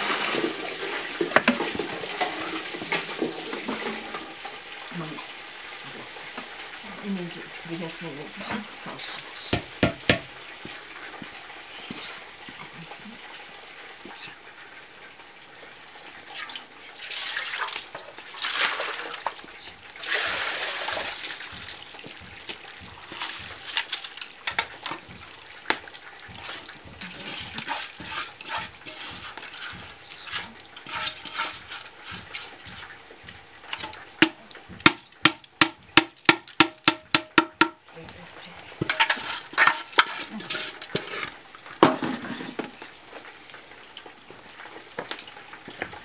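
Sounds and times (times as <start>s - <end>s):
water splashing and trickling: 10.5s - 46.0s
pot striking metal bowl: 24.4s - 32.9s, 33.7s - 37.8s.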